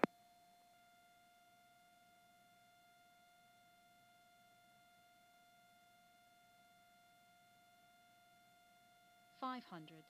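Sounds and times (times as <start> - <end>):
faint steady whine: 0.0 - 10.0.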